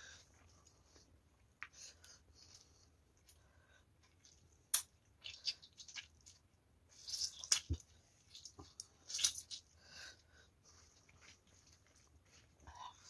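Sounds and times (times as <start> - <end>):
wet squelching of hand kneading rice: 5.1 - 9.8.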